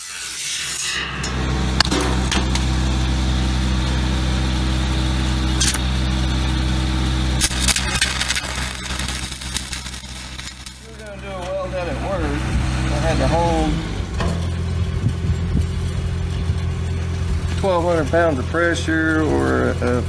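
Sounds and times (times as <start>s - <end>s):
engine humming: 1.0s - 20.0s
sharp clicks: 5.6s - 5.8s.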